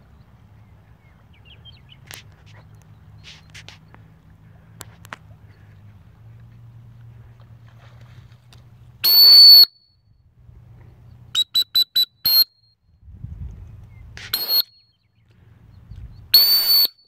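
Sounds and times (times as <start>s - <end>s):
dog whistle blasts: 9.0s - 9.8s, 11.4s - 12.5s, 14.3s - 14.7s, 16.4s - 17.0s.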